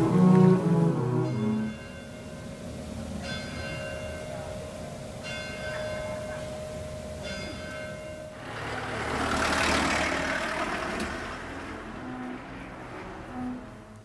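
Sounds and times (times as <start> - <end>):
church bell tolling: 0.0 - 8.9.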